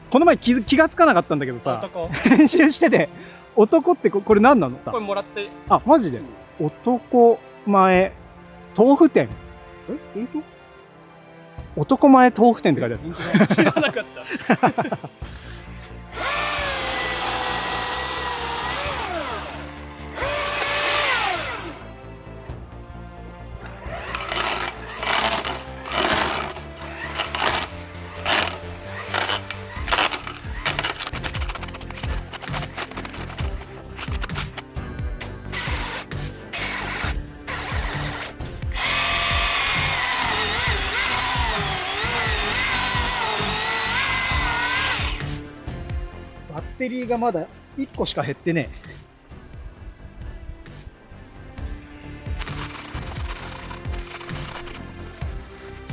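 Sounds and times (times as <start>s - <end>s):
background music: 0.0s - 55.9s
power tool motor whining: 15.2s - 21.9s, 23.7s - 34.6s, 35.5s - 45.4s, 52.0s - 55.2s.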